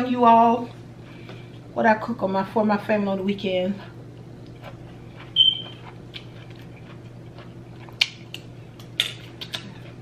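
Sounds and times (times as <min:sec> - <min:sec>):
low steady hum: 0:00.0 - 0:10.0
chewing with mouth clicks: 0:04.2 - 0:10.0.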